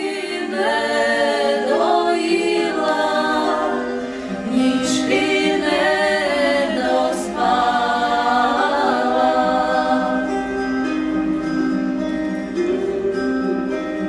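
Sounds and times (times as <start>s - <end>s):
women singing in harmony: 0.0s - 11.0s.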